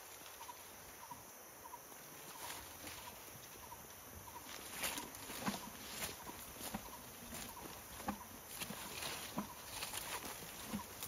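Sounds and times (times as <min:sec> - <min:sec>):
undergrowth rustling and crackling: 0:00.0 - 0:01.1, 0:02.0 - 0:11.0.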